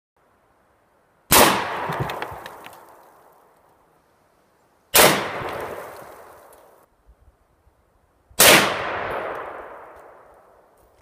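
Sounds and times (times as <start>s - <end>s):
gunshot with echo: 5.0s - 5.8s, 8.4s - 10.0s.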